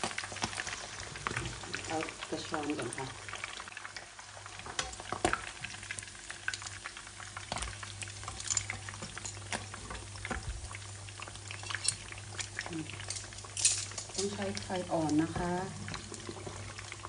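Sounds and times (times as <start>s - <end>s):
oil crackling and popping: 0.0s - 17.0s
metal tongs clinking on pan: 4.8s - 5.0s, 8.2s - 9.7s, 11.5s - 14.7s.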